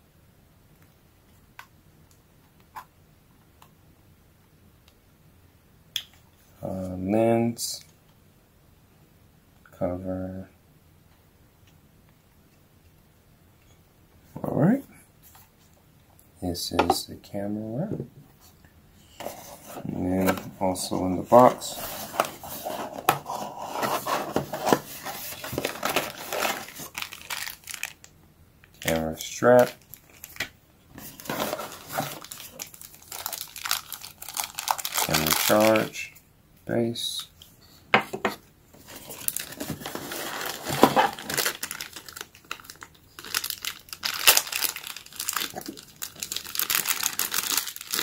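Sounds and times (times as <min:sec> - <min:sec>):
cardboard scraping and rubbing: 0:21.5 - 0:26.9, 0:31.0 - 0:32.2, 0:38.8 - 0:41.3
plastic bag crinkling: 0:21.6 - 0:28.1, 0:28.7 - 0:30.4, 0:31.0 - 0:36.0, 0:38.8 - 0:48.0.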